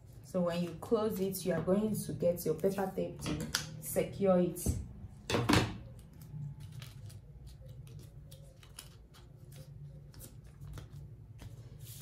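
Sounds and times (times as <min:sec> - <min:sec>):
paper clicks and rustles: 0:05.9 - 0:12.0.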